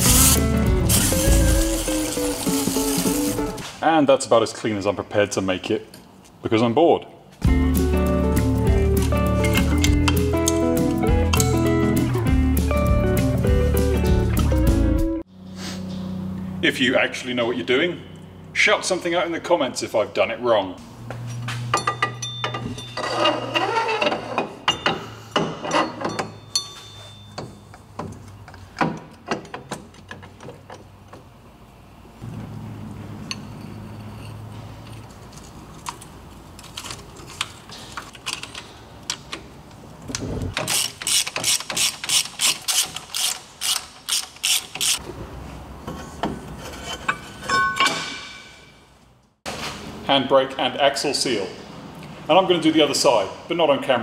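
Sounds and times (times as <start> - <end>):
metal clinks: 21.7 - 23.5, 24.7 - 28.0
ratchet wrench clicking: 40.6 - 45.0.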